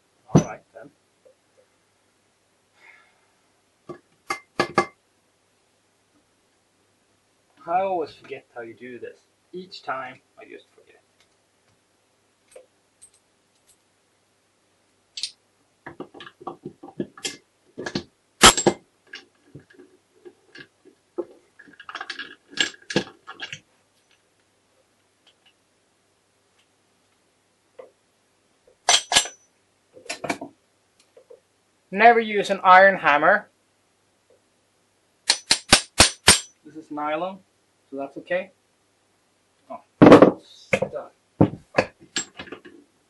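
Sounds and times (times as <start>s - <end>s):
metal gears clinking: 28.9s - 29.4s.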